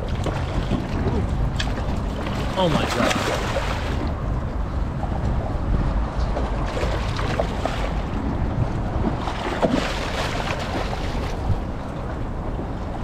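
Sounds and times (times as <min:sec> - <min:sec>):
fish splashing in water: 0:00.0 - 0:04.2, 0:09.2 - 0:11.4
wind buffeting microphone: 0:00.0 - 0:13.0.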